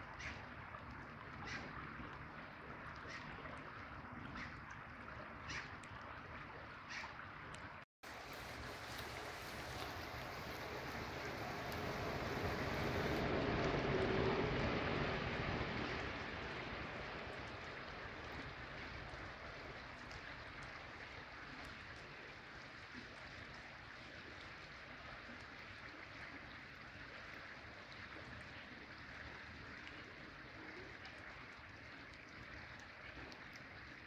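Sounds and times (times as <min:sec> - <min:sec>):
river water rushing: 0:08.1 - 0:18.9.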